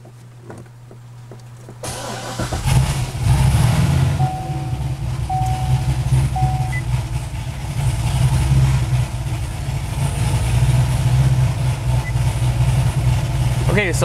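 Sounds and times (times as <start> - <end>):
car engine idling: 0.1 - 14.0
short electronic beeps: 4.2 - 6.8.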